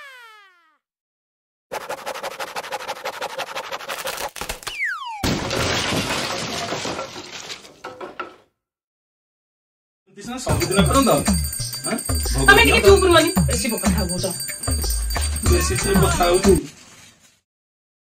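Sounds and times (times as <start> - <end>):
loud crashing and shattering: 5.2 - 8.2.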